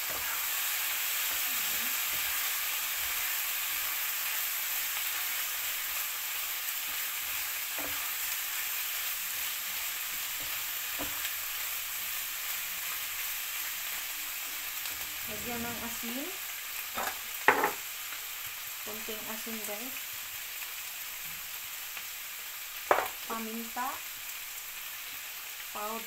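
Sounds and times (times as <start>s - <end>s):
chicken sizzling in frying pan: 0.0s - 26.0s
spatula knocking pan: 17.0s - 17.8s, 22.9s - 23.2s.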